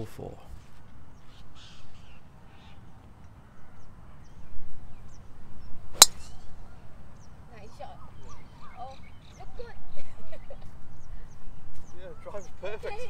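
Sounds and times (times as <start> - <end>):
golf club striking ball: 5.9 - 6.4.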